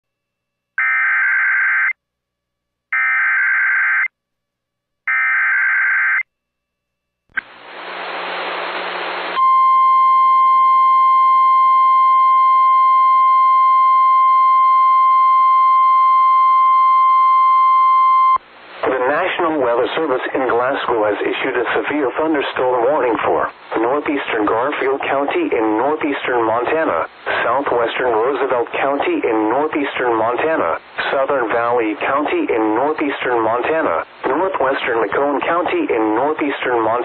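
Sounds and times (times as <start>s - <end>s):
static hiss: 7.4s - 9.4s.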